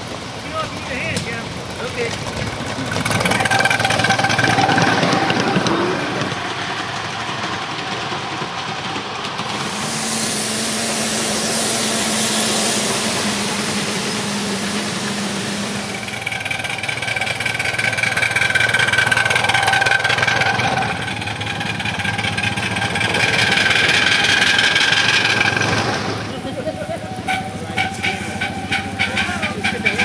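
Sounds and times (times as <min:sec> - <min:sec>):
miniature steam locomotive running: 0:00.0 - 0:30.0.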